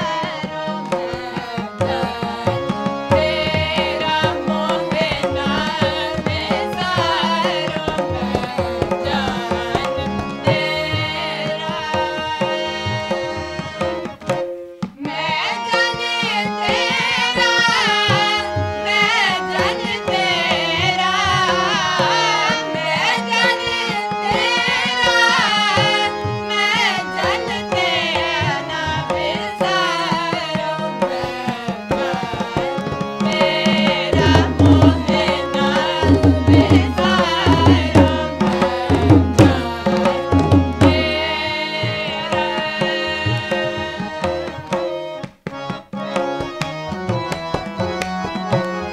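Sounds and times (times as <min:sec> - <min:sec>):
voices singing: 0:00.0 - 0:14.2, 0:15.0 - 0:48.9
harmonium: 0:00.0 - 0:48.9
tabla drumming: 0:00.0 - 0:48.9.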